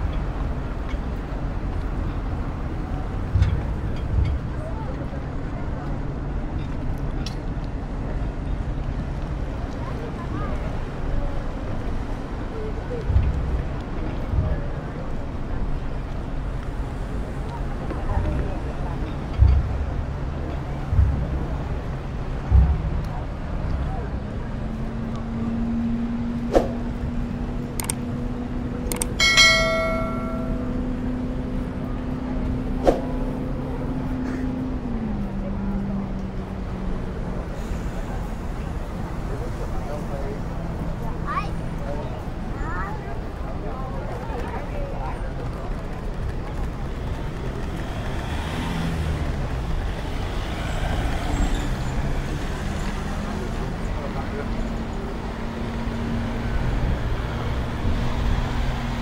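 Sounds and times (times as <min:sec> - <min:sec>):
engine humming: 0:00.0 - 0:59.0
road traffic: 0:00.0 - 0:59.0
sharp clicks: 0:27.7 - 0:28.0, 0:28.8 - 0:29.2
bell ringing: 0:29.2 - 0:31.0.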